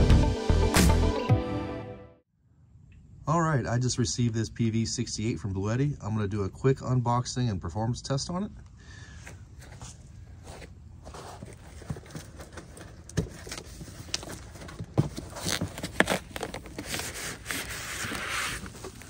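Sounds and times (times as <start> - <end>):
cardboard box knocks and scrapes: 11.1 - 18.7
scraping rustle of bubble wrap: 13.5 - 19.0.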